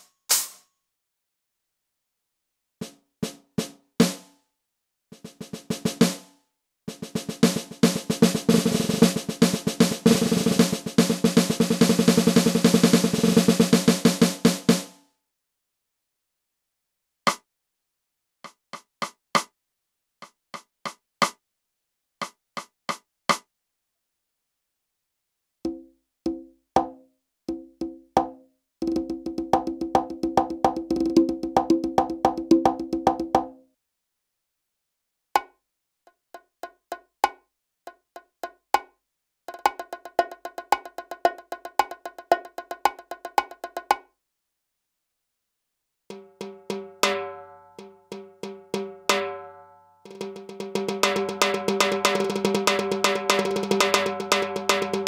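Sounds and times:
electronic conga tones: 0:25.7 - 0:33.6.

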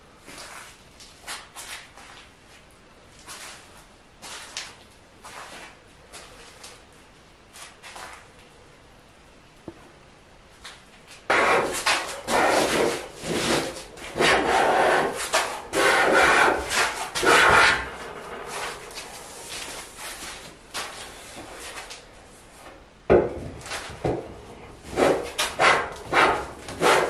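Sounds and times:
hand plane rasping on wood: 0:12.3 - 0:18.8, 0:24.9 - 0:27.0.

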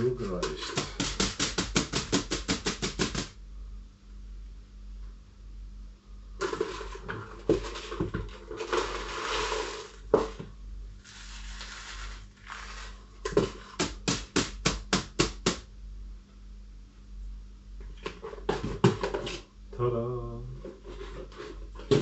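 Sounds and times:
plastic rustling: 0:06.4 - 0:10.4, 0:11.0 - 0:13.7.

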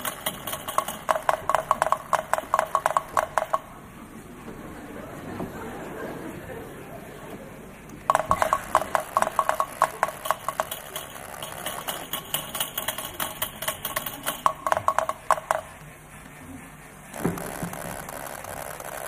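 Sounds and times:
sharp clicks and clinks: 0:00.0 - 0:03.7, 0:08.1 - 0:15.8.

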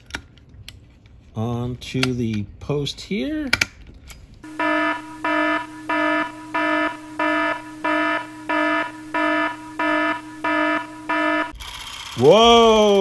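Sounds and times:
pulsing buzzing alarm tone: 0:04.4 - 0:12.3.

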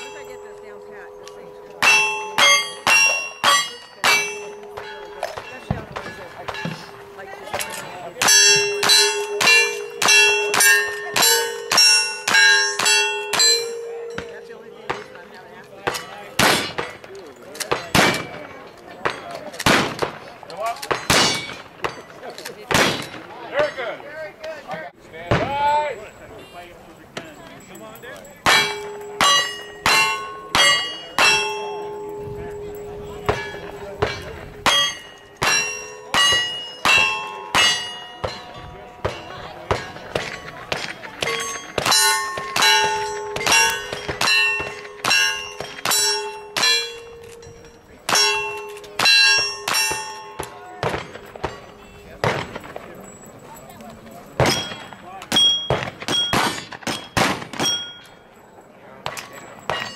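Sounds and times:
ring of steel target hit: 0:00.0 - 0:15.2, 0:28.4 - 0:47.5, 0:48.1 - 0:52.5
gunshots: 0:15.9 - 0:17.0, 0:17.7 - 0:20.3, 0:20.9 - 0:22.0, 0:22.7 - 0:23.3, 0:52.2 - 0:52.9, 0:55.7 - 0:57.8.

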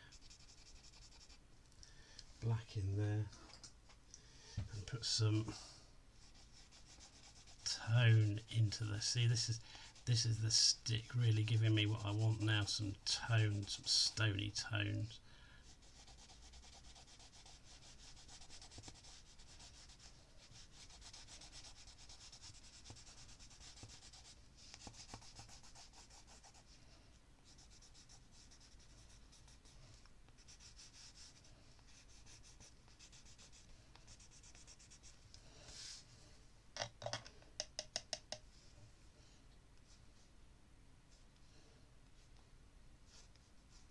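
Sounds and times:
stick scratching on paper: 0:00.1 - 0:01.4, 0:06.2 - 0:07.8, 0:09.8 - 0:14.2, 0:15.7 - 0:26.6, 0:27.4 - 0:29.8, 0:30.4 - 0:35.1.

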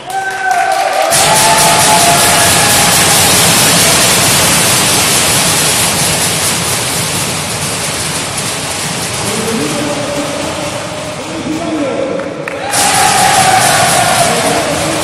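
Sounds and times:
team yelling in echoing gym: 0:00.0 - 0:04.8, 0:09.8 - 0:15.0.

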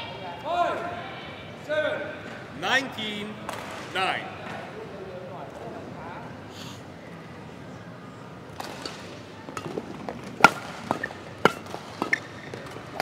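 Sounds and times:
badminton rackets hitting shuttlecock: 0:09.6 - 0:13.0.

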